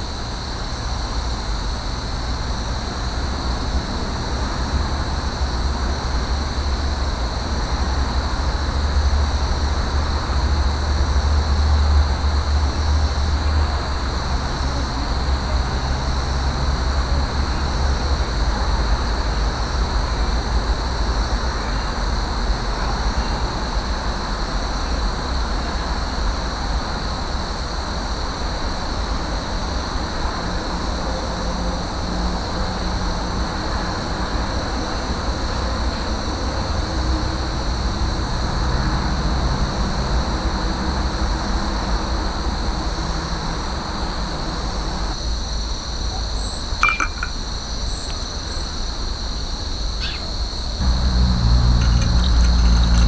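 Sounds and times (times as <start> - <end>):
low rumble of distant traffic: 45.2 - 53.0
high-pitched whine: 46.8 - 48.6.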